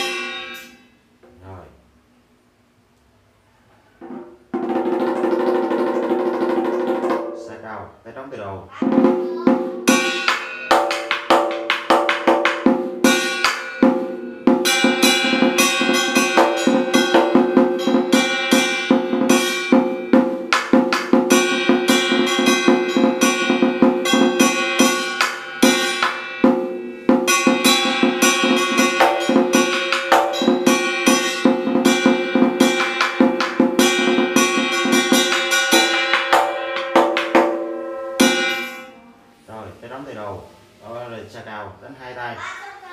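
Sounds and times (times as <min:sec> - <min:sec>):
large drum beaten fast: 0:04.0 - 0:07.6, 0:08.8 - 0:38.8.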